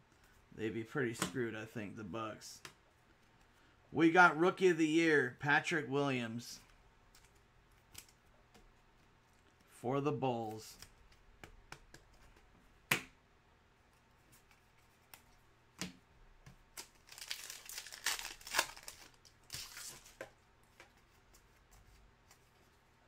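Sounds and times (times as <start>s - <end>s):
foil wrapper crinkling: 16.8s - 20.2s.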